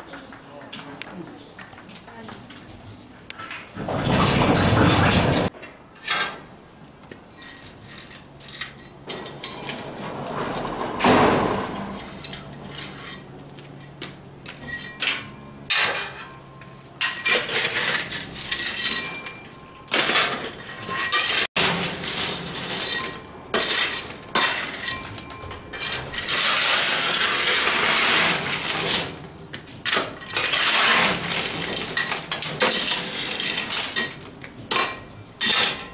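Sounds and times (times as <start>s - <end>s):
shovel scraping coal: 17.0s - 35.9s.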